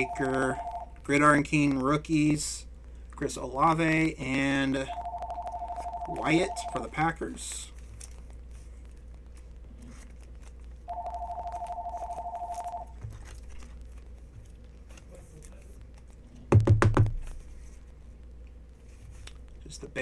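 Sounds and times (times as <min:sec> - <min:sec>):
telephone ringing two-tone: 0:00.0 - 0:00.9, 0:04.9 - 0:06.9, 0:10.9 - 0:12.9.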